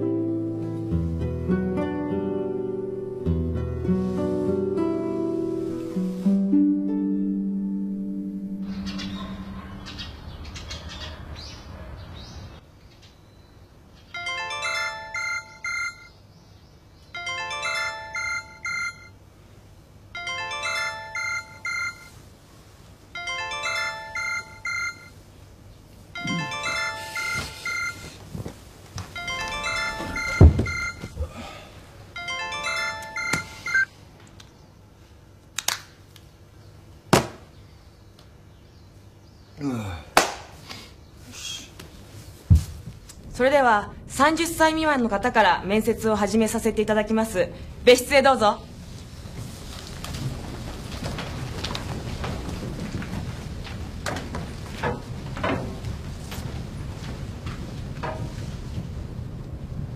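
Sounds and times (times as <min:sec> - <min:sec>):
electronic telephone ringtone: 0:14.2 - 0:16.1, 0:17.2 - 0:19.2, 0:20.2 - 0:22.1, 0:23.2 - 0:25.2, 0:26.2 - 0:28.1, 0:29.2 - 0:31.1, 0:32.2 - 0:33.9.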